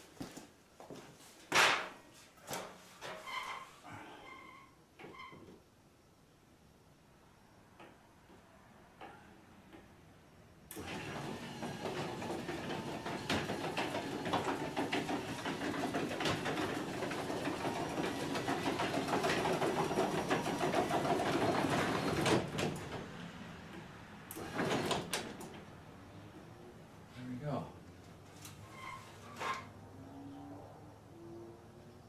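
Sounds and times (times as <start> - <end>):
garage door opener motor running: 10.7 - 23.0, 24.3 - 25.6
garage door rattling: 10.8 - 23.1, 24.4 - 25.6.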